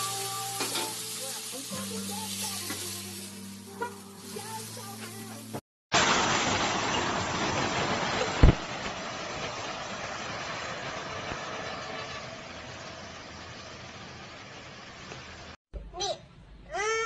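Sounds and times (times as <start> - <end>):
heavy rain hissing: 0.0 - 15.6
low thump: 8.4 - 8.7.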